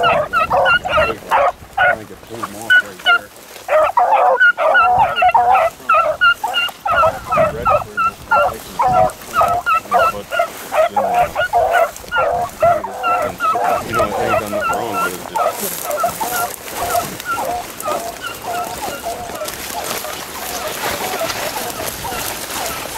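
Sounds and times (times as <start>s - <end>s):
hounds baying: 0.0s - 22.9s.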